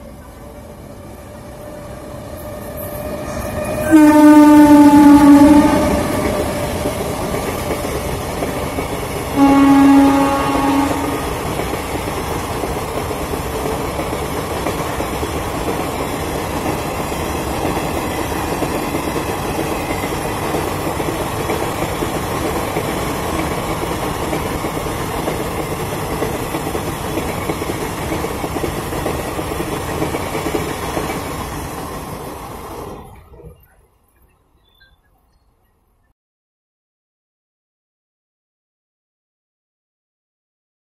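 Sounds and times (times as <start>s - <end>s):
train rumbling past: 0.0s - 34.3s
wheels clattering on rails: 5.3s - 34.7s.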